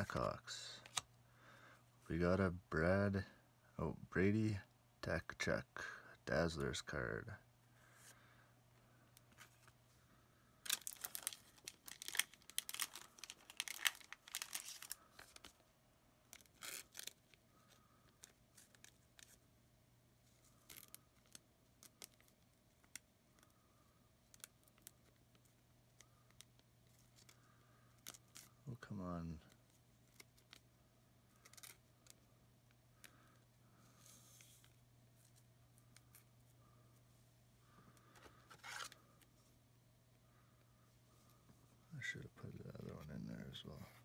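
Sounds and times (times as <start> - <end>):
cards clicking and rustling: 0.0 - 1.1, 10.7 - 15.6, 16.3 - 19.4, 31.3 - 32.3, 38.0 - 39.3
foil wrapper tearing and crinkling: 10.6 - 15.5, 16.3 - 17.2.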